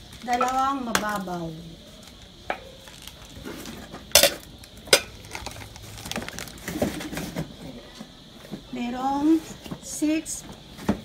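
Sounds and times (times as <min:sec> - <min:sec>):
glass dishes clinking: 0:04.2 - 0:05.1.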